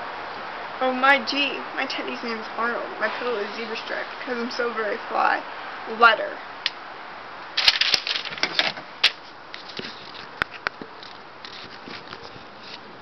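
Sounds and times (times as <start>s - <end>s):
rustling and clicking handling noise: 7.6s - 13.0s.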